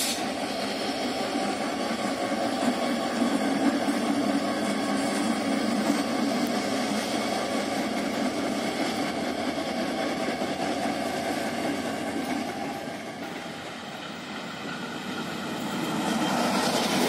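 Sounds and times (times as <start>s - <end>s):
diesel locomotive engine running: 0.0s - 17.0s.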